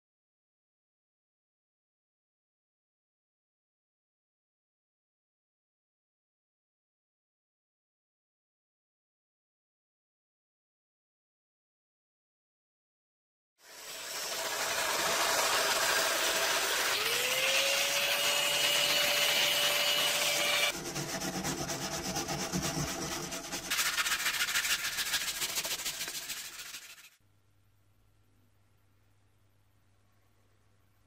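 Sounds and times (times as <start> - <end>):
wire brush scrubbing metal: 13.7 - 27.2
faint low hum: 27.2 - 31.0.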